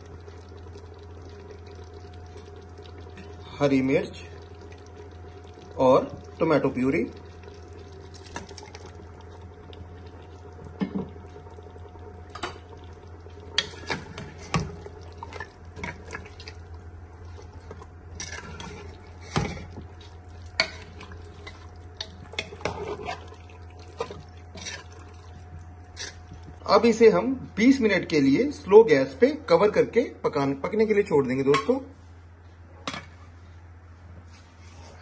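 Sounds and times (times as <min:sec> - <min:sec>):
low hum: 0:00.0 - 0:28.7
wet squelching: 0:13.6 - 0:26.7.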